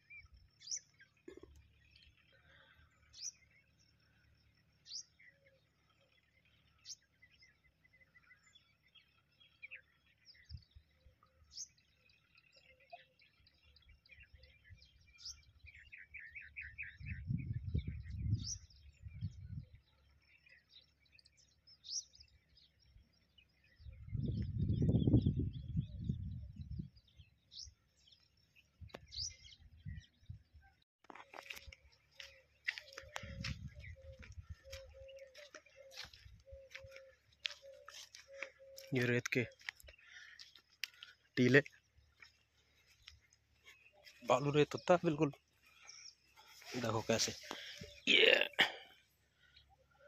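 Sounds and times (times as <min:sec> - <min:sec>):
birds twittering: 0:00.0 - 0:50.0
low rumble on microphone: 0:17.0 - 0:19.9, 0:23.8 - 0:27.3
bird trill: 0:31.2 - 0:41.6.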